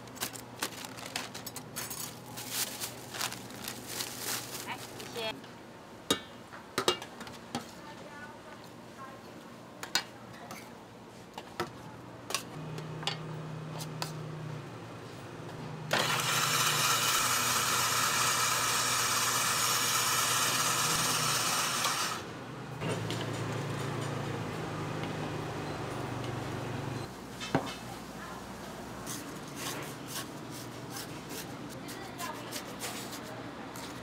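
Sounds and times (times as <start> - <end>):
ice shaving machine motor humming: 12.6 - 27.1
grinding hiss of ice shaving: 15.9 - 22.3.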